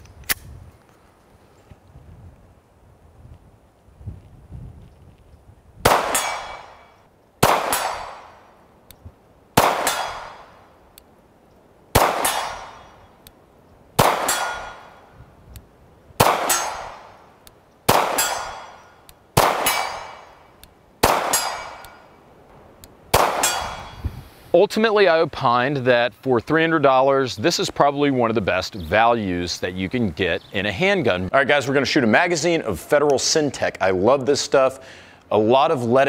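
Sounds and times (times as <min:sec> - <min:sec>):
pistol shots with echo: 0:05.8 - 0:08.5, 0:09.6 - 0:10.6, 0:11.9 - 0:13.0, 0:14.0 - 0:15.0, 0:16.2 - 0:17.2, 0:17.9 - 0:20.4, 0:21.0 - 0:22.1, 0:23.1 - 0:24.0.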